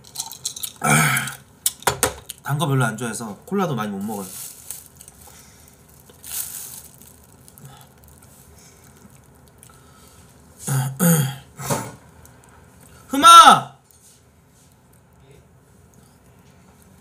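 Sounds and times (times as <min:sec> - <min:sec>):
man clearing his throat: 0:10.6 - 0:12.0.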